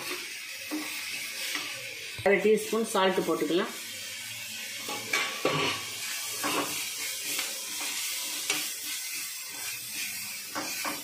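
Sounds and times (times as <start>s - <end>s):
vegetables sizzling in oil: 0.0s - 11.0s
spatula scraping and tapping pan: 4.8s - 11.0s.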